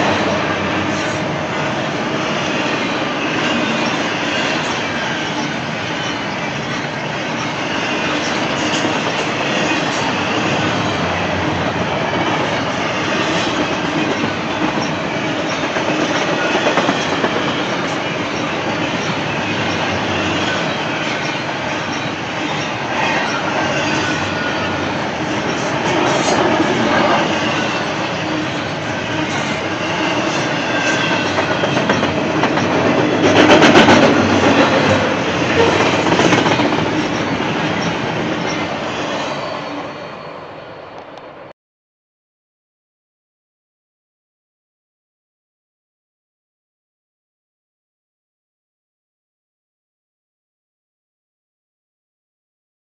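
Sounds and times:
train wheels rumbling on rail: 0.0 - 41.4
faint high wheel squeal: 34.6 - 40.9.

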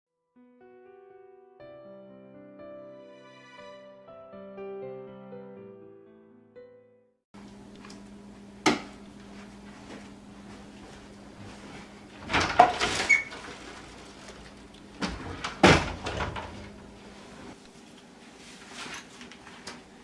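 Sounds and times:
bifold doors sliding on track: 12.1 - 17.6.

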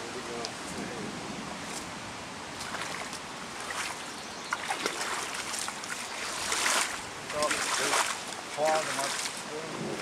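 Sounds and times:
floodwater running: 2.4 - 10.0
brush rustling and crackling: 2.6 - 10.0.

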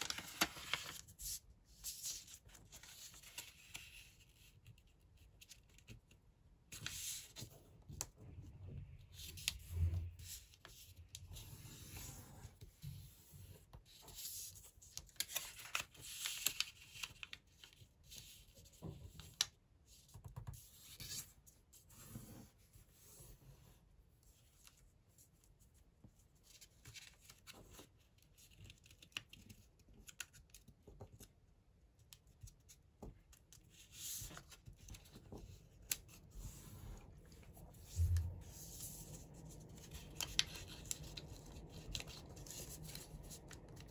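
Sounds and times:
paper rustling and crinkling: 0.0 - 6.1, 13.8 - 19.5, 26.4 - 31.3, 32.3 - 43.9.

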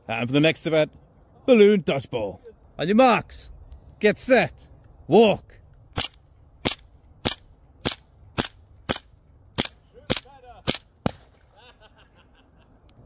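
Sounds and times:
airsoft pistol shots: 6.0 - 11.4.

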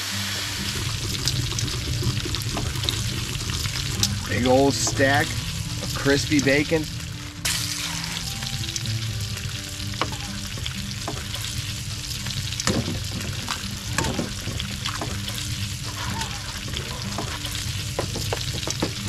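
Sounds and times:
food sizzling in a pan: 0.0 - 19.0
utensils scraping a metal pan: 10.0 - 19.0.

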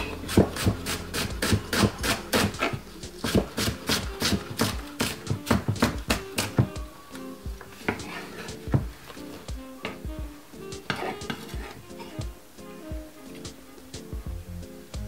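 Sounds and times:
knife chopping on wooden board: 0.3 - 6.7.

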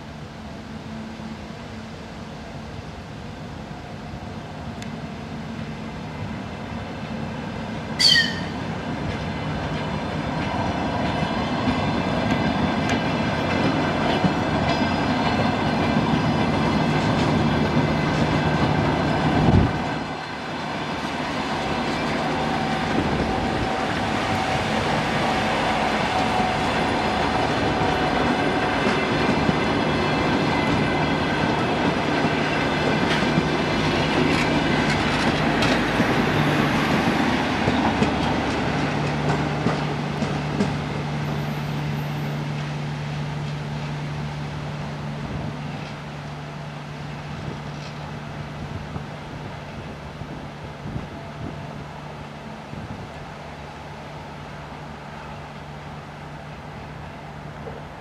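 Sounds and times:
wheels clicking over rail joints: 26.1 - 41.4.

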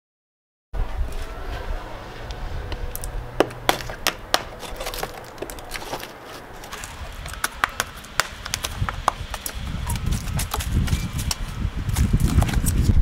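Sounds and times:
metal tool scraping rotted wood: 2.9 - 12.9.

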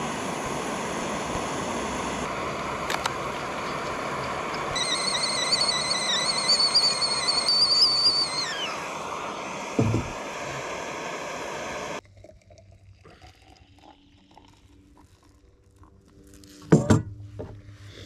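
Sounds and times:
gas burner hissing: 0.0 - 12.0
kettle whistling: 0.0 - 12.0.

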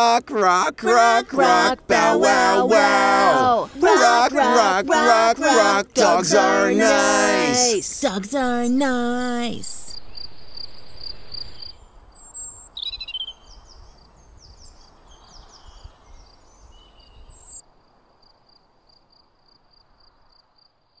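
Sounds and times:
cricket chirping: 9.9 - 21.0
bird chirps: 10.0 - 13.8.

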